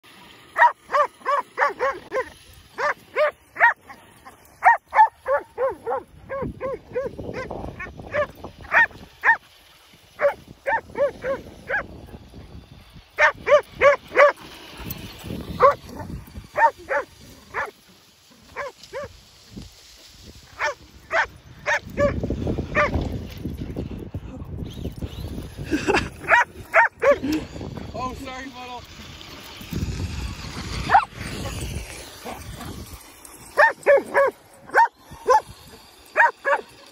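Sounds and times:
dog barking excitedly: 0.6 - 4.0, 4.6 - 9.4, 10.2 - 11.9, 13.2 - 14.4, 15.6 - 17.7, 18.6 - 19.1, 20.6 - 23.0, 26.3 - 27.2, 30.9 - 31.6, 33.6 - 35.5, 36.2 - 36.7.

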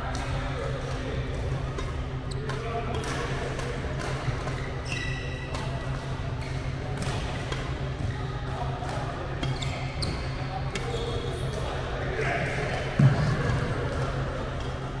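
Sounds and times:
shoe squeak: 4.5 - 5.6, 9.4 - 11.7.

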